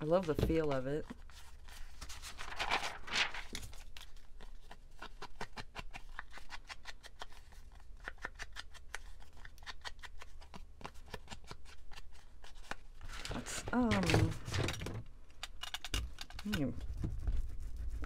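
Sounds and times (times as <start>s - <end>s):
paper rustling: 0.0s - 8.2s, 8.9s - 15.0s.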